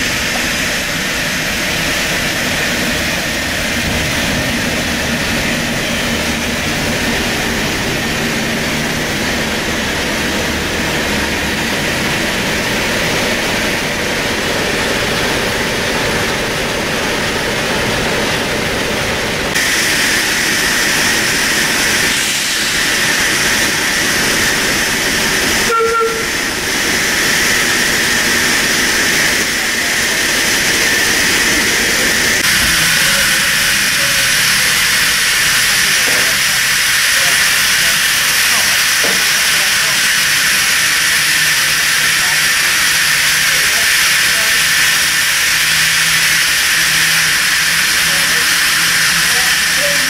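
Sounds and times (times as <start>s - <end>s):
steam locomotive hissing: 0.0s - 50.0s
short high tone: 25.7s - 26.3s.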